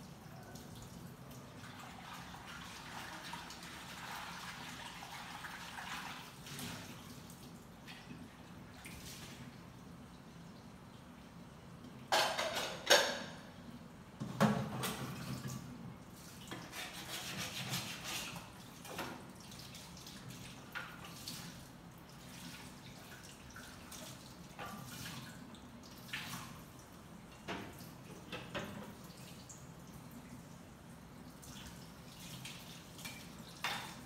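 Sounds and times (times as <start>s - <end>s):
water splashing and dripping: 0.0s - 11.1s, 18.0s - 34.0s.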